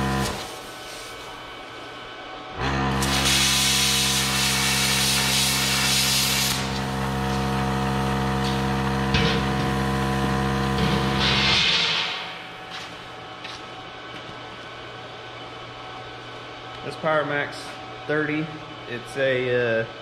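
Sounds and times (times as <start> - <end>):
air compressor humming: 0.0 - 20.0
air hiss burst: 3.0 - 6.7
plasma cutter arc hissing: 3.0 - 6.8.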